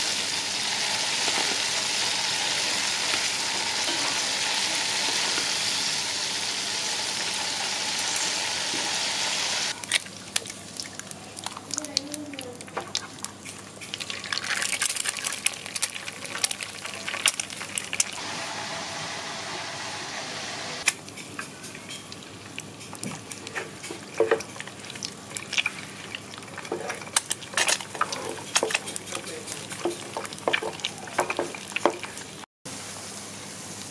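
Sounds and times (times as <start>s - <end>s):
eggs frying in hot oil: 0.0s - 20.2s, 20.8s - 33.9s
crackles and pops: 9.7s - 18.2s.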